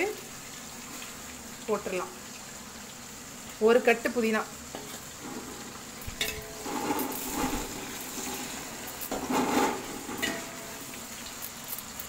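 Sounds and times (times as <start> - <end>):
food sizzling in oil: 0.0 - 12.0
spoon scraping metal pot: 5.2 - 10.6.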